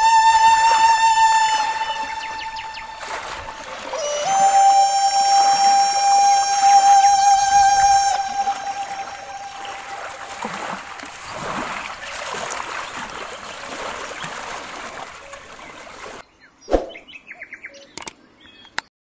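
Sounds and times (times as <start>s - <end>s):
river water splashing: 0.0s - 16.2s
short clicks: 18.0s - 18.2s.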